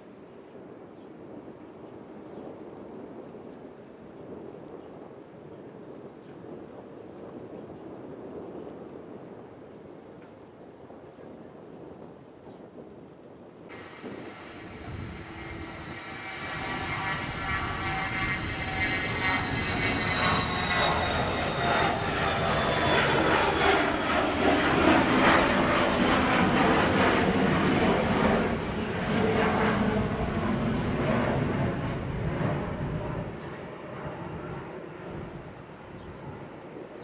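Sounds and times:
jet engine whine and roar: 0:13.7 - 0:37.0.

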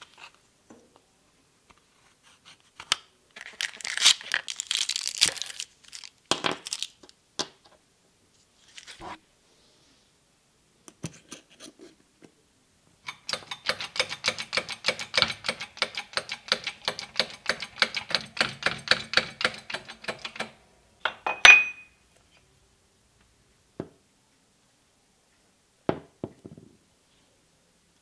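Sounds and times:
metallic clank ringing: 0:21.2 - 0:22.0.

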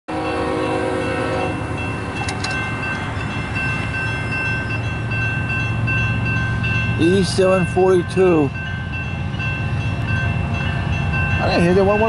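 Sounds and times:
locomotive air horn: 0:00.1 - 0:01.8
crossing bell ringing: 0:00.1 - 0:12.0.

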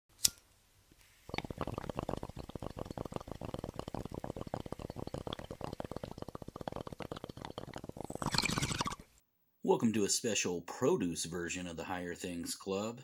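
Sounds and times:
water bubbling: 0:01.3 - 0:09.1.

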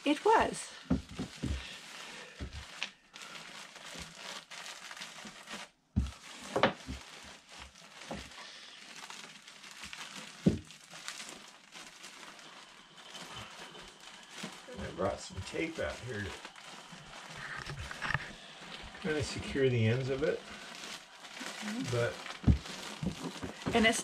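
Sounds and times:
insulation crinkling and rustling: 0:00.0 - 0:24.0.

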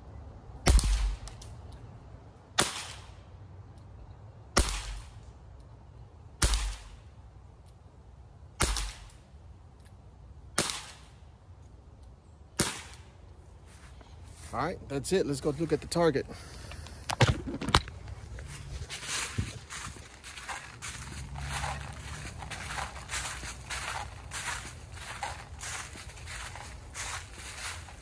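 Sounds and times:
pellet revolver shots: 0:00.7 - 0:01.4, 0:06.4 - 0:06.9, 0:08.6 - 0:09.2, 0:10.6 - 0:11.0.

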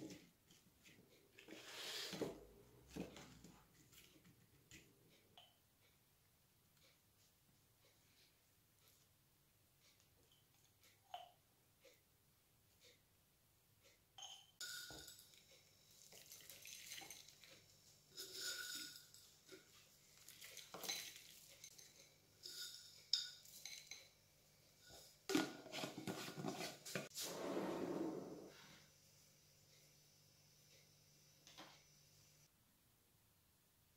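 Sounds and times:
spoon scraping glass bowl: 0:18.2 - 0:19.2, 0:20.3 - 0:24.0.

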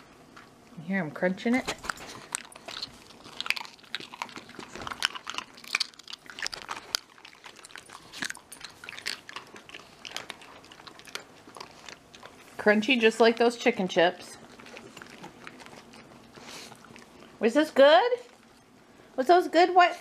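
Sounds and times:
dog crunching a treat: 0:01.5 - 0:17.4.

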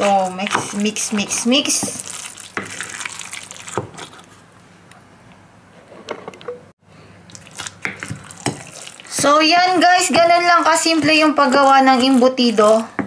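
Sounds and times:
spoon stirring wet meat mixture: 0:00.0 - 0:04.3, 0:07.3 - 0:13.0.

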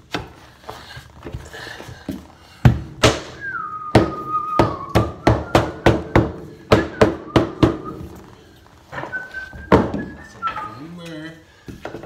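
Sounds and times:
mallet knocking floorboard: 0:02.7 - 0:08.1.

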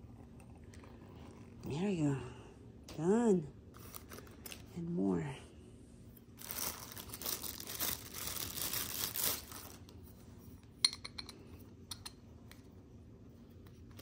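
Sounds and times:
plastic packaging crinkling: 0:03.8 - 0:04.7, 0:06.3 - 0:10.0.

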